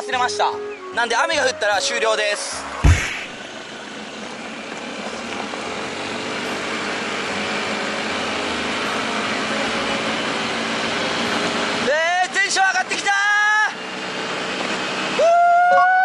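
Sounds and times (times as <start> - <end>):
wind and road noise: 0.0 - 15.4
scooter engine running: 2.8 - 12.2.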